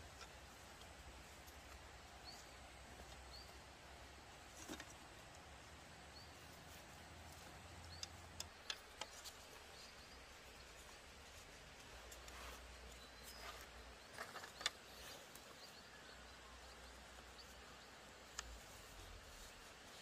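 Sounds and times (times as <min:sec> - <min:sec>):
bamboo strips clicking: 0:07.6 - 0:09.7, 0:14.1 - 0:15.5.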